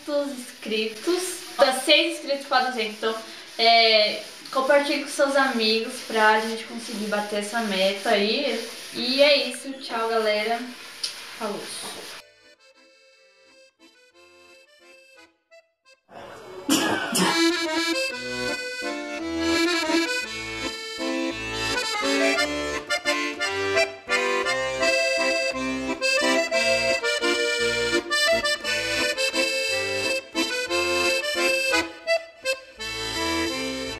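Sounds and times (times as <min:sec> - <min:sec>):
instrumental music with bass beat: 0:17.4 - 0:33.9.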